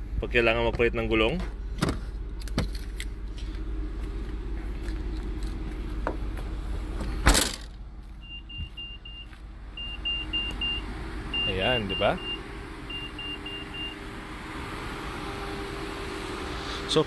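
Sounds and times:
steady low hum: 0.0s - 11.5s.

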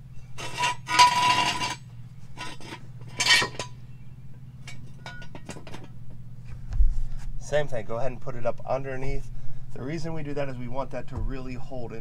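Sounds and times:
jack stand scraping on concrete: 0.2s - 3.8s, 4.6s - 6.0s.

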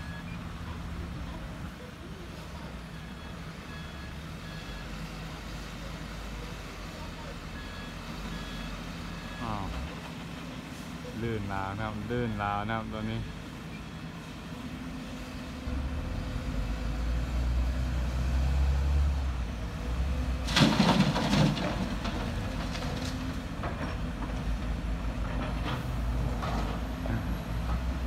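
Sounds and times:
excavator diesel engines rumbling: 0.0s - 28.0s
soil and stones pouring into truck bed: 20.4s - 23.4s.

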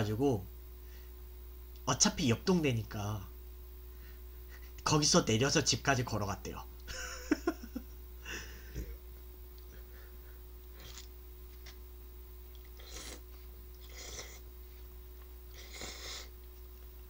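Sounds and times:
noodles being slurped: 10.8s - 11.1s.

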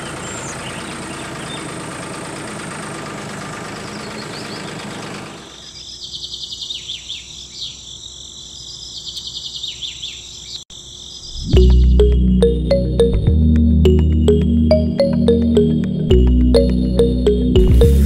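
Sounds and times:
toy tractor engine noise: 0.0s - 5.6s
birds chirping: 0.0s - 12.9s
insects trilling: 5.4s - 11.4s.

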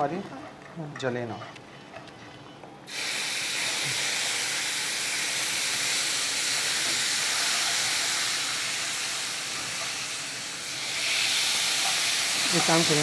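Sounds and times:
steam sizzling in a frying pan: 2.9s - 13.0s.

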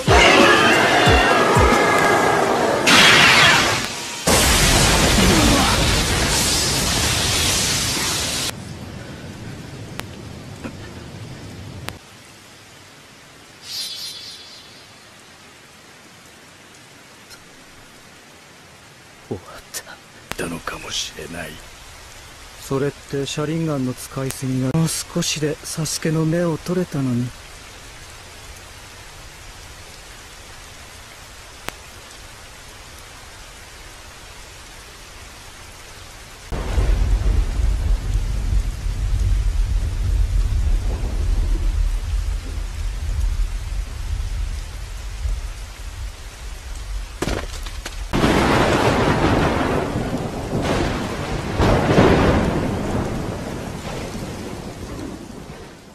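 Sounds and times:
loud thunderclap: 0.0s - 8.6s, 36.5s - 55.9s
rain falling: 0.0s - 55.9s
low rumble of thunder: 36.5s - 47.2s, 48.0s - 55.9s.

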